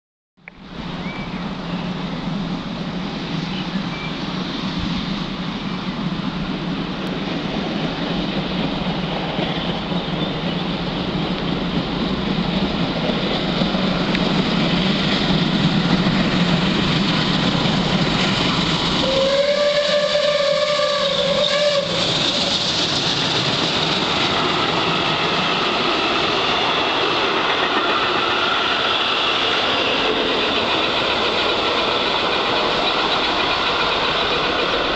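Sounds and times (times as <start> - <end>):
train coaches passing: 0.5 - 34.9
steam locomotive rushing past: 0.6 - 34.9
steam whistle long note: 19.0 - 22.4.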